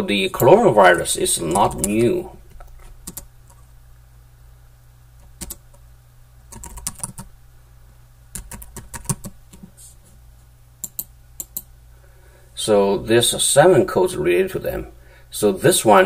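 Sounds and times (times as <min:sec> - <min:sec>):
low steady hum: 0:00.0 - 0:16.0
computer keyboard typing: 0:01.5 - 0:03.6, 0:05.2 - 0:05.8, 0:06.5 - 0:07.3, 0:08.3 - 0:09.6, 0:10.8 - 0:11.7.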